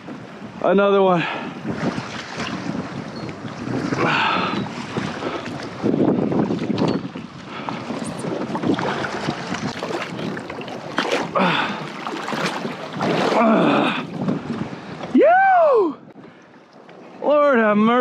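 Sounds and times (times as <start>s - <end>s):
wind buffeting microphone: 0.0s - 18.0s
water sloshing against kayak hull: 1.2s - 15.2s, 16.1s - 18.0s
sharp splashes: 8.2s - 14.1s.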